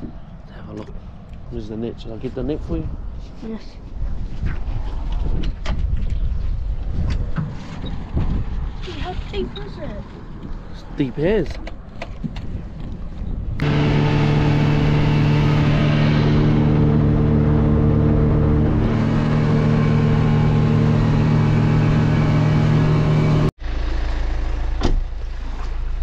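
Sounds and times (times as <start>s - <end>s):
low rumble: 13.4s - 25.4s
boat engine droning: 13.6s - 24.7s.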